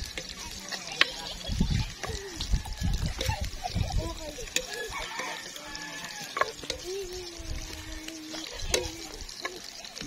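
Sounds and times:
rooster crowing: 0:04.6 - 0:06.6.

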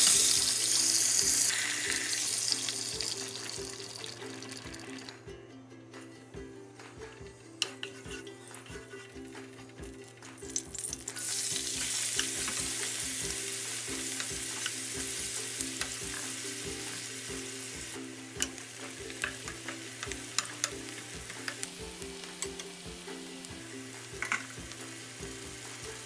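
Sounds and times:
onions sizzling in hot oil: 0:00.0 - 0:05.2, 0:09.2 - 0:26.0
wooden spoon knocking pan: 0:18.4 - 0:21.7.

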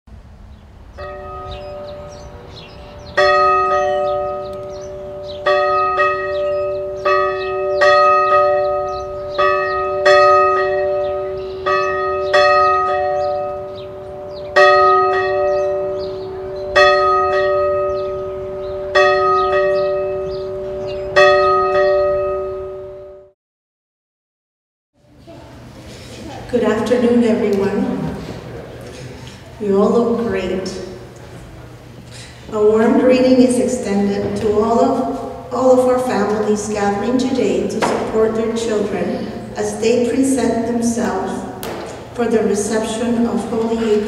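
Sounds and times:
church bell tolling: 0:00.9 - 0:23.3, 0:32.6 - 0:44.0.

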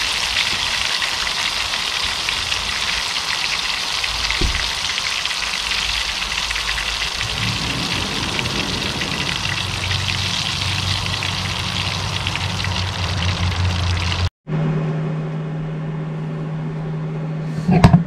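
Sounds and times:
seafood frying in hot oil: 0:00.0 - 0:14.3.

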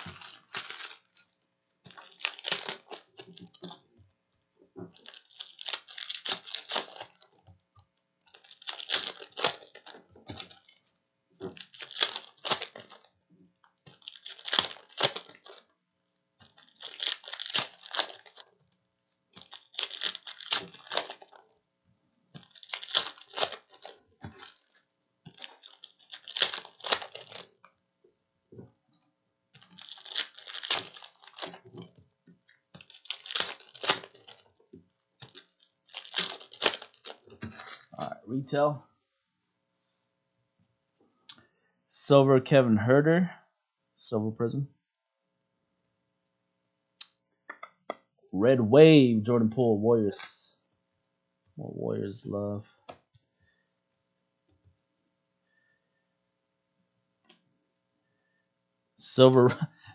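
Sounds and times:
foil wrappers tearing and crinkling: 0:00.0 - 0:01.3, 0:01.9 - 0:03.8, 0:04.9 - 0:07.4, 0:08.3 - 0:13.1, 0:13.9 - 0:15.7, 0:16.4 - 0:18.6, 0:19.3 - 0:21.6, 0:22.4 - 0:27.6, 0:29.6 - 0:31.9, 0:32.7 - 0:34.6, 0:35.2 - 0:37.9.

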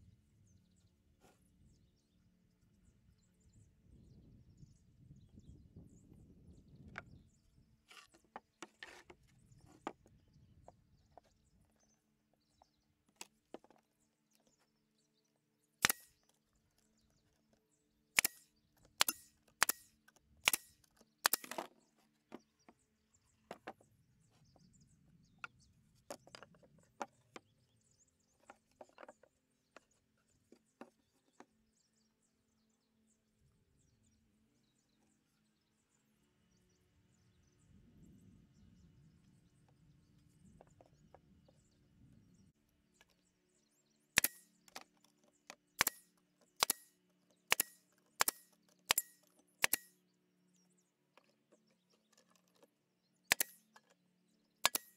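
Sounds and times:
nail gun firing into wood: 0:15.8 - 0:16.2, 0:18.2 - 0:21.7, 0:44.2 - 0:44.5, 0:45.8 - 0:49.9, 0:53.3 - 0:53.6, 0:54.6 - 0:54.9.

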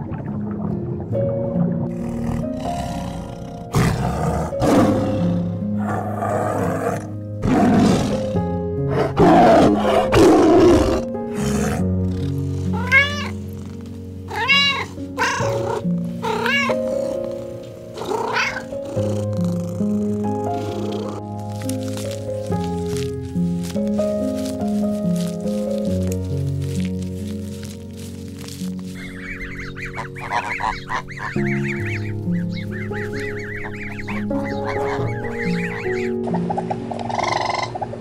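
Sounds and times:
background music: 0:00.0 - 0:38.0
tiger roaring and growling: 0:01.9 - 0:24.5
cat meowing: 0:12.8 - 0:13.4, 0:14.3 - 0:16.9, 0:18.1 - 0:18.8.

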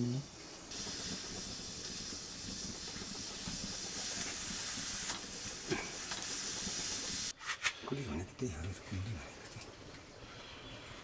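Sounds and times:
food hissing over fire: 0:00.0 - 0:07.7.

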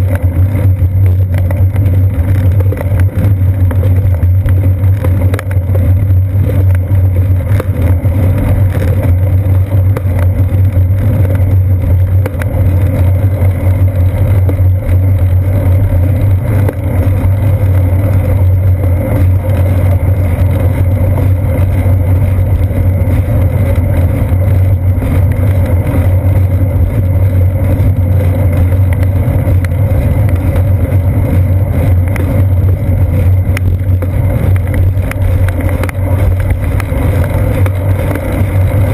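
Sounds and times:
wind and road rumble: 0:00.0 - 0:38.9.

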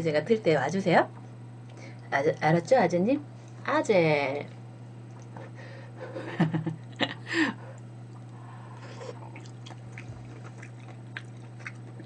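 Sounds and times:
steady low hum: 0:00.0 - 0:12.0
person chewing food: 0:07.8 - 0:12.0.

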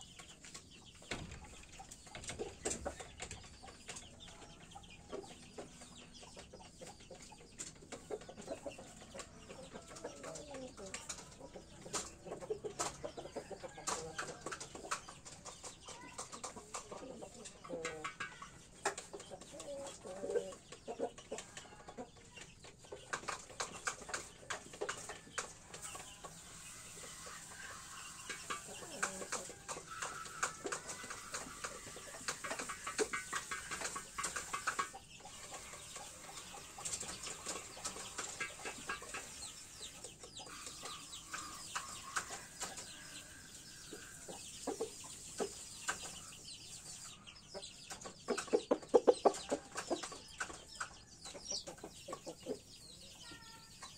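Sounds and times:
chickens clucking: 0:00.0 - 0:53.9.

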